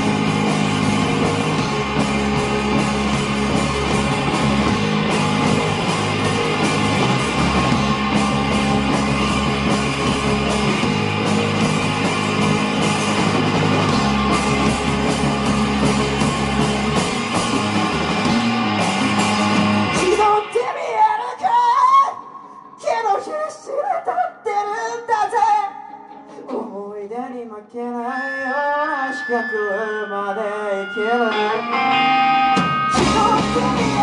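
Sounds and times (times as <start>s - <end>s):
rock band playing: 0.0s - 22.2s, 29.6s - 34.0s.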